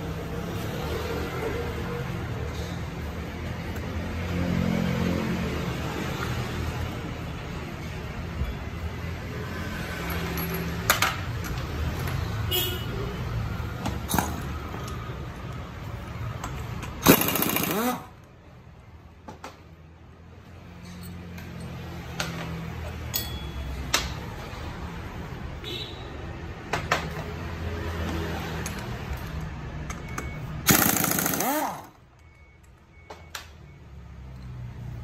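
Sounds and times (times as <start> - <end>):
air impact wrench rattling: 16.9 - 18.2, 30.6 - 32.0
metal tools clinking: 20.8 - 22.0, 22.8 - 23.9.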